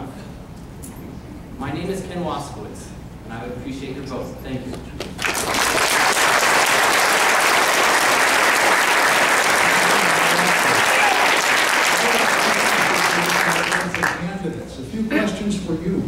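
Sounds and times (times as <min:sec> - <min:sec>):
audience applauding: 0:05.0 - 0:14.4.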